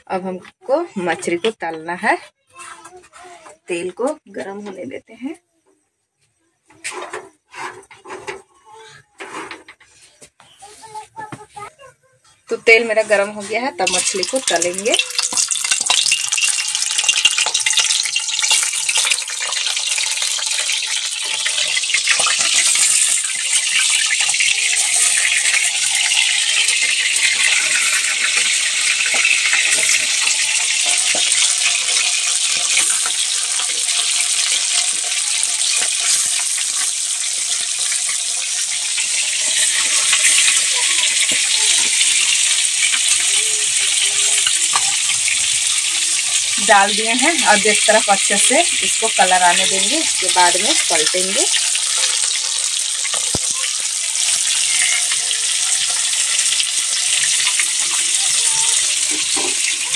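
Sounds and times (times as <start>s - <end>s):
fish sizzling in hot oil: 13.0s - 59.9s
oil crackling and popping: 13.8s - 59.9s.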